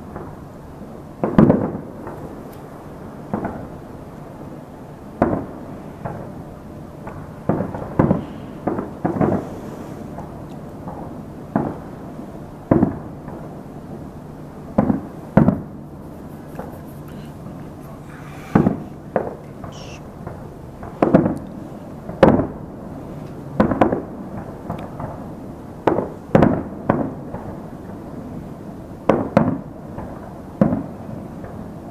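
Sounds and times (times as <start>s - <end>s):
distant firework booms echoing: 7.0s - 12.0s, 12.7s - 13.5s, 14.7s - 16.7s, 18.2s - 21.4s.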